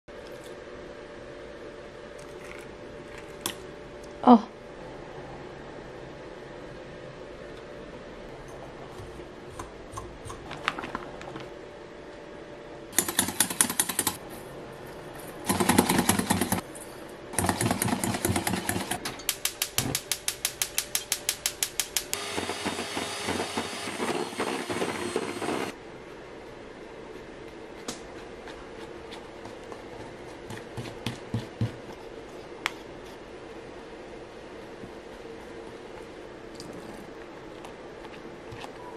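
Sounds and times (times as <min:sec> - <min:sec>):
electric hand mixer running: 0:22.2 - 0:25.8.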